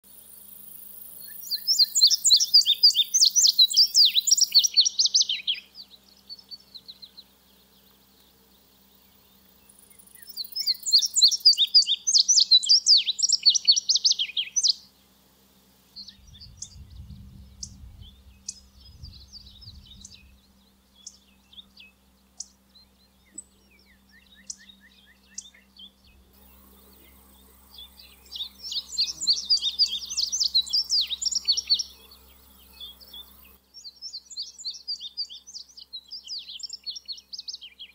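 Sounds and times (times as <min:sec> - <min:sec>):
bird singing rapid high song: 0:00.1 - 0:15.2, 0:15.9 - 0:37.9
faint bird chirps: 0:00.2 - 0:15.1, 0:15.9 - 0:37.9.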